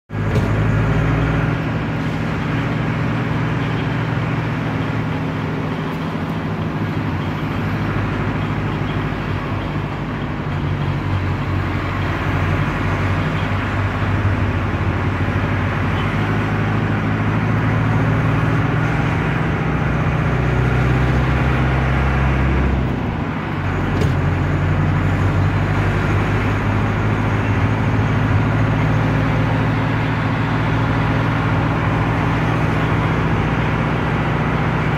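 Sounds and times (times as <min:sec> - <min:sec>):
diesel engine running: 0:00.1 - 0:34.9.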